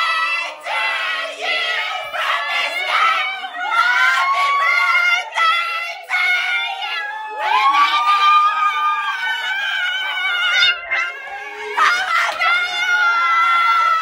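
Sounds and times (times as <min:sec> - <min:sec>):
high-pitched voices shrieking: 0:06.8 - 0:14.0.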